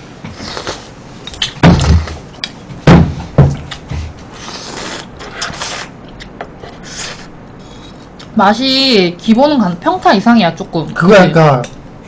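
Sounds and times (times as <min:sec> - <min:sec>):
loud dull thumps: 0:02.8 - 0:04.2.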